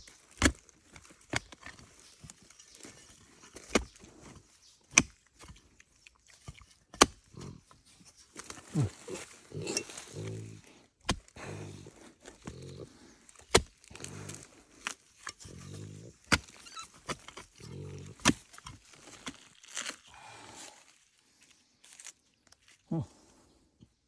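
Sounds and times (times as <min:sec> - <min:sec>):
hoe chopping into soil: 0:00.3 - 0:01.8, 0:03.4 - 0:05.6, 0:06.4 - 0:07.6, 0:11.0 - 0:12.7, 0:13.4 - 0:19.4
pig grunting: 0:07.3 - 0:07.7, 0:08.6 - 0:13.1, 0:15.4 - 0:16.3, 0:17.6 - 0:18.2.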